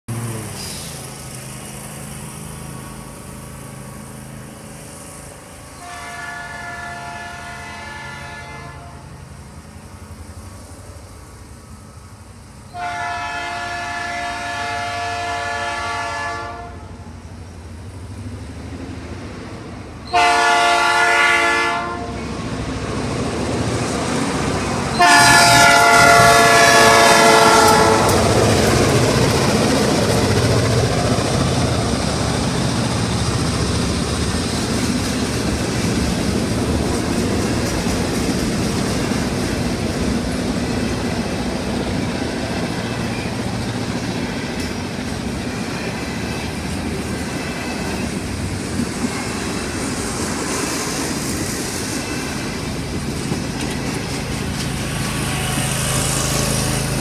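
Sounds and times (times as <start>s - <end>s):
train engine and wheels: 0.1s - 57.0s
locomotive air horn blasts: 5.8s - 9.1s, 12.7s - 17.0s, 20.1s - 22.3s, 24.9s - 28.4s.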